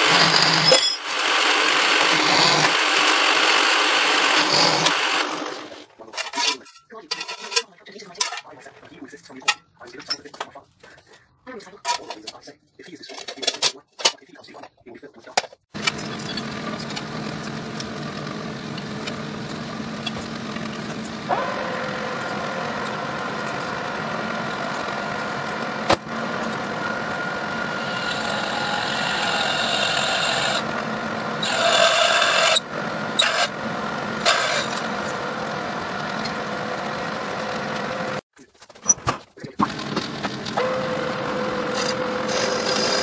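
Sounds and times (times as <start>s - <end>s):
high-pitched cutting squeal: 0.0s - 5.3s, 27.0s - 30.7s, 31.4s - 33.6s, 34.2s - 35.2s, 40.6s - 43.0s
lathe machine hum: 0.0s - 5.8s, 15.8s - 38.2s, 39.7s - 43.0s.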